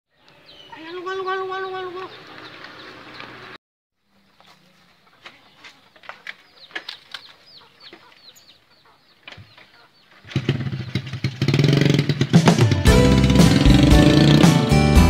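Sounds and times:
small birds chirping: 0:00.1 - 0:12.4
small motorcycle engine running: 0:10.2 - 0:14.7.

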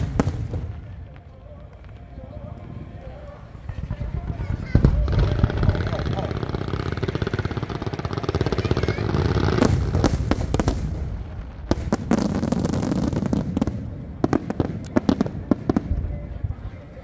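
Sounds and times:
fireworks bangs and crackles: 0:00.0 - 0:17.0
fireworks low rumble: 0:00.0 - 0:17.0.

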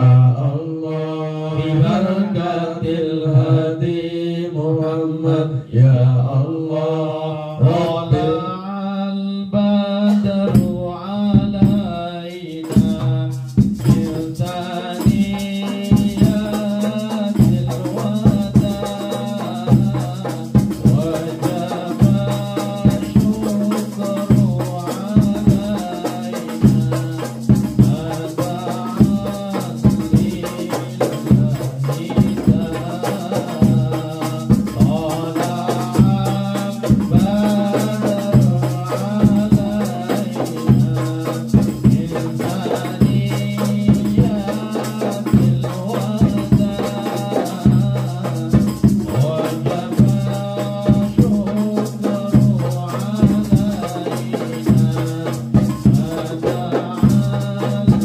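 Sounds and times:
person singing into microphone: 0:00.0 - 0:58.0
frame drums beating: 0:10.1 - 0:58.0
tambourines jingling: 0:12.4 - 0:56.7.

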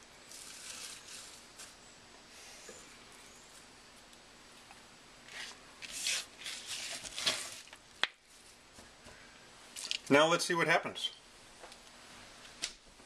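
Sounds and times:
kale leaves rustling and crunching: 0:00.2 - 0:01.8, 0:05.3 - 0:07.8.

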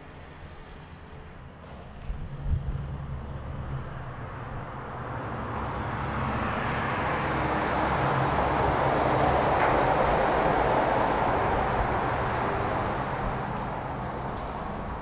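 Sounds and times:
low rumbling hum: 0:00.0 - 0:06.3.

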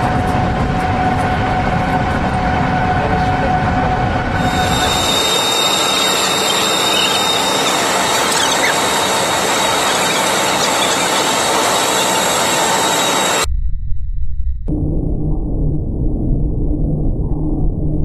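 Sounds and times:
high whining tones: 0:00.0 - 0:13.5
loud steady rushing noise: 0:00.0 - 0:13.5.

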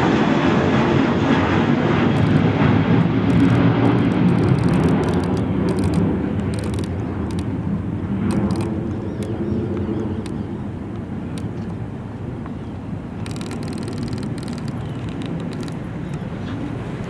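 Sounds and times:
distant train rumbling on trestle: 0:01.2 - 0:17.0
faint clicks: 0:02.1 - 0:02.5, 0:03.2 - 0:07.6, 0:08.3 - 0:11.8, 0:13.2 - 0:16.7.

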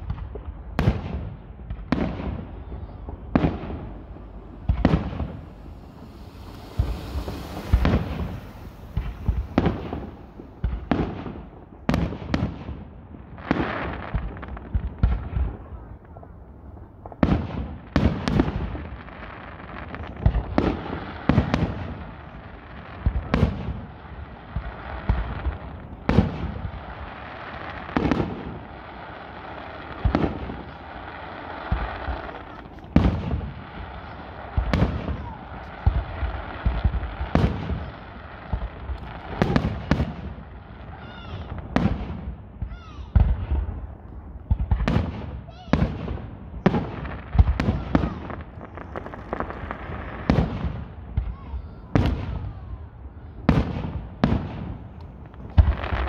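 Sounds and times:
firework shells bursting: 0:01.9 - 0:12.0, 0:48.4 - 0:50.6.

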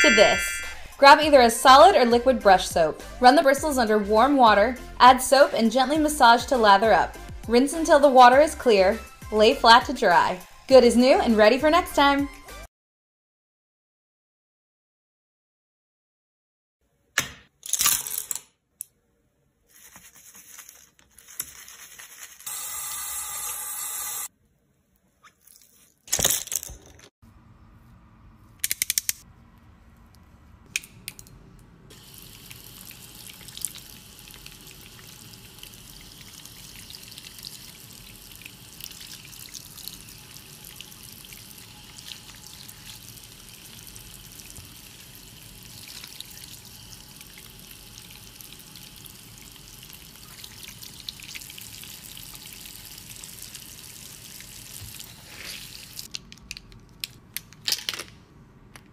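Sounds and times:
water drips: 0:31.9 - 0:55.1.

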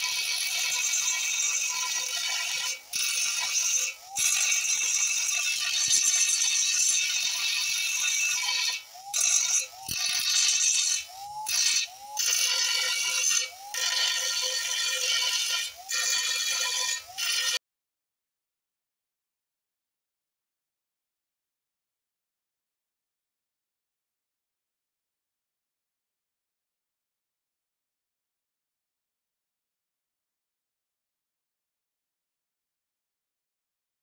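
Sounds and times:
cutting disc grinding steel: 0:00.0 - 0:17.6.

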